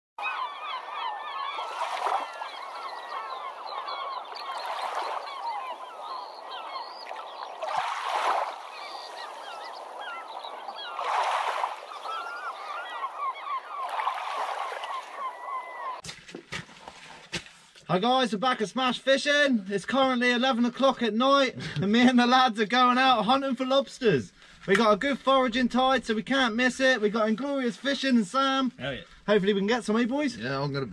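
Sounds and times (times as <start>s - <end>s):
flock of birds calling: 0.2s - 16.0s.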